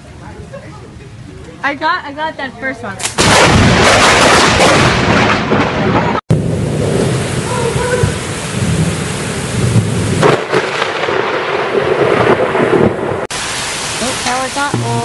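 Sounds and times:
heavy rain falling: 3.2s - 15.0s
loud thunder rumbling: 3.2s - 15.0s
low thunder rumbling: 3.2s - 15.0s.

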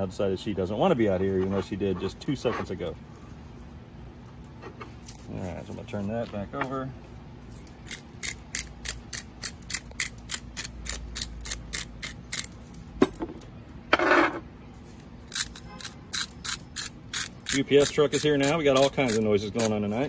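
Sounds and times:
spice grinder ratcheting clicks: 7.8s - 12.6s, 15.3s - 19.7s.

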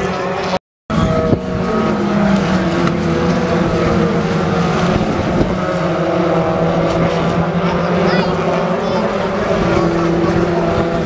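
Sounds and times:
racing car engines: 0.0s - 11.0s.

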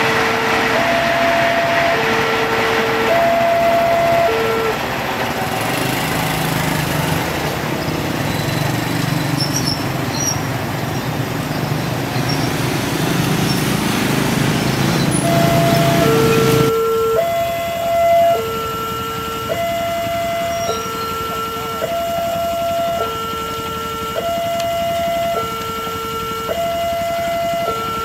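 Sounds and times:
two-tone level crossing alarm: 0.0s - 6.9s, 14.3s - 28.0s
car engines: 0.0s - 28.0s
motorcycle engines: 0.0s - 28.0s.

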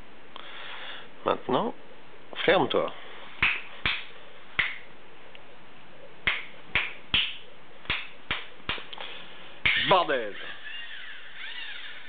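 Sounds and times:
finger snaps: 3.4s - 5.4s, 6.3s - 9.1s.

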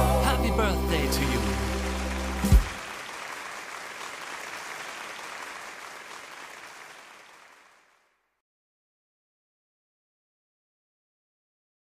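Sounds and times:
applause: 0.6s - 8.4s.

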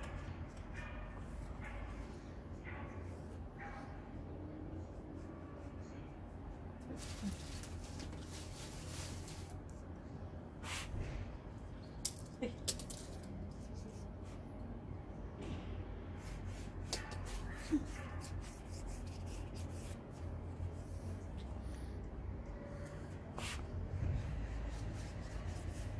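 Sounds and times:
paper handled: 6.9s - 9.7s.

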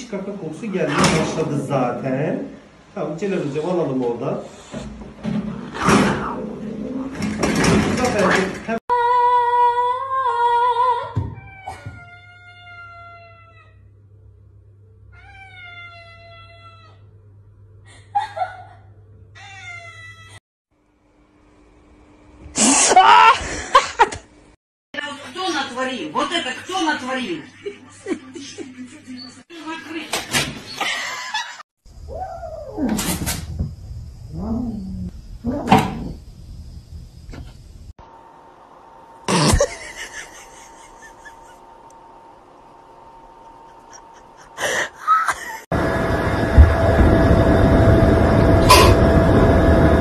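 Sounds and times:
cat meowing: 11.4s - 13.8s, 15.1s - 17.0s.

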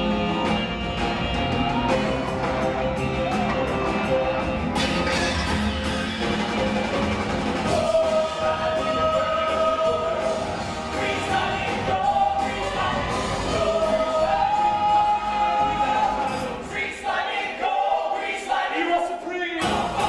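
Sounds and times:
live band playing: 0.0s - 16.6s
ensemble singing: 3.9s - 18.6s.

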